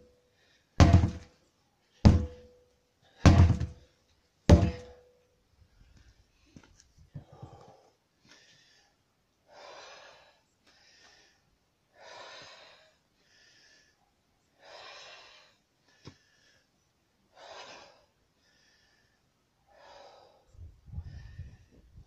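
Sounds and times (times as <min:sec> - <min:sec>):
man breathing deeply: 0:07.2 - 0:14.0, 0:14.6 - 0:16.8, 0:17.4 - 0:21.8.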